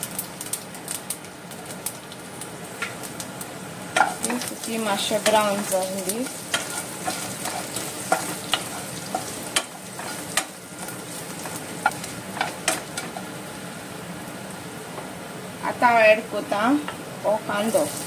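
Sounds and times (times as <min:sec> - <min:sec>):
spices sizzling in oil: 0:00.0 - 0:18.0
spatula stirring: 0:04.0 - 0:13.4.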